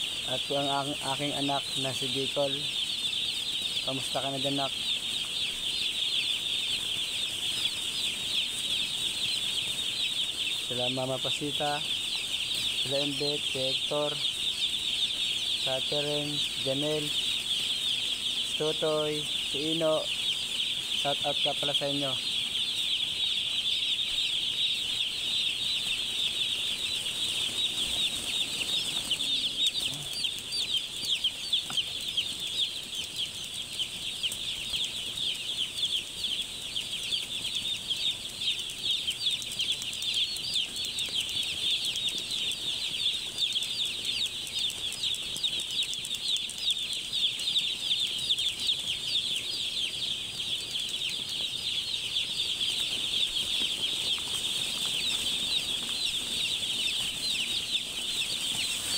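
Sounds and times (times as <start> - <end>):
chicks peeping: 0.0 - 58.9.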